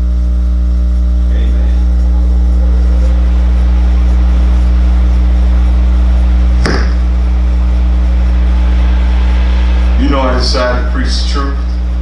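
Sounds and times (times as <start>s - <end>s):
low electrical hum: 0.0s - 12.0s
microphone knock: 6.6s - 7.0s.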